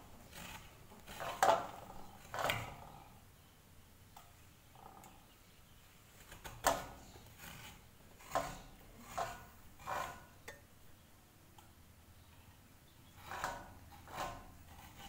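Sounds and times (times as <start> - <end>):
coconut scraped with hand grater: 0.0 - 3.1, 6.2 - 10.4, 13.1 - 15.0.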